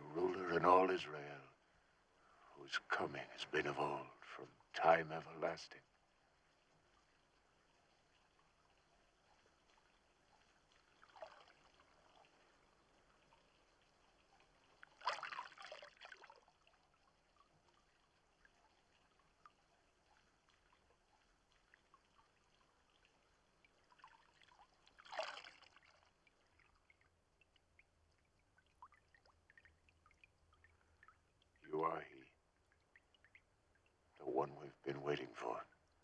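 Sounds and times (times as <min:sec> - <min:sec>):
water trickling and dripping: 0:03.4 - 0:36.0
water pouring and splashing: 0:06.8 - 0:31.6.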